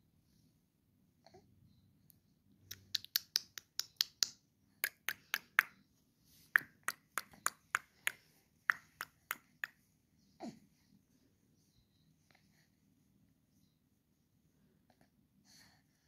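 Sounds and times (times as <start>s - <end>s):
person making clicking sounds: 2.7s - 5.7s, 6.5s - 9.8s.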